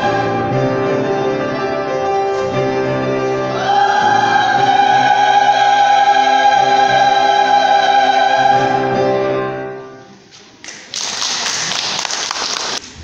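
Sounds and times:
choir holding a chord: 0.0 - 1.7, 2.3 - 10.0.

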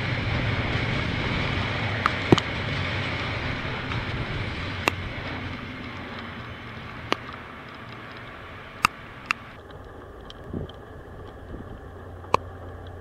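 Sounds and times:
freight train rumbling past: 0.0 - 13.0
sharp clicks: 6.9 - 13.0.

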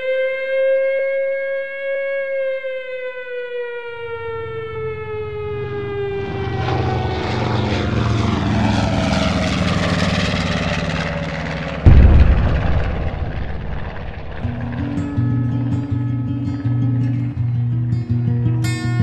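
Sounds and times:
air-raid siren winding down: 0.0 - 17.3
aircraft engines droning: 4.0 - 18.0
rushing noise: 11.7 - 16.2.

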